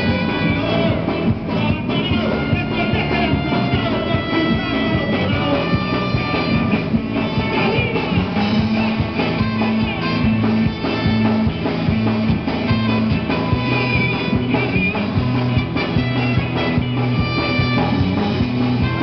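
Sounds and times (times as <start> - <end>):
man singing into microphone: 0.0 - 8.5
bass line: 0.0 - 19.0
drum beat: 0.0 - 19.0
electric guitar: 0.0 - 19.0
rock band playing: 0.0 - 19.0
trombone: 0.0 - 19.0.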